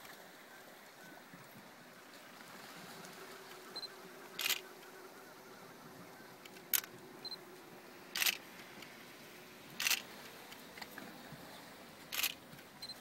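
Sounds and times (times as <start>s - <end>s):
camera shutter clicks: 4.4s - 4.6s, 8.2s - 8.4s, 9.8s - 10.1s, 12.1s - 12.4s.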